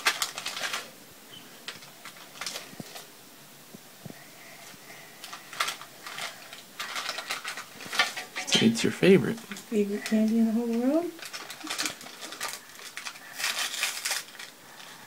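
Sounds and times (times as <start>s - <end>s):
candies rattling in a tin: 0.0s - 0.9s, 1.6s - 3.1s, 5.2s - 8.9s, 9.5s - 15.0s.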